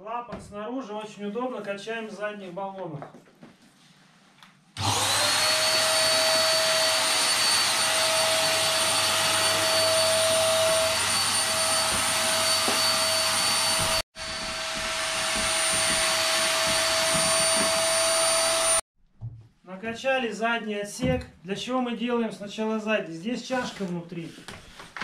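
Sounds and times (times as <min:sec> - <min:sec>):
electric air pump running: 0:04.8 - 0:18.8.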